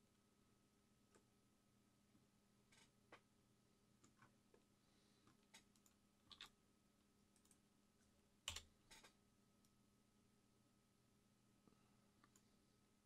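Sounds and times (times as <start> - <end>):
faint keyboard and mouse clicks: 4.0 - 6.6, 7.3 - 9.8, 12.2 - 12.5.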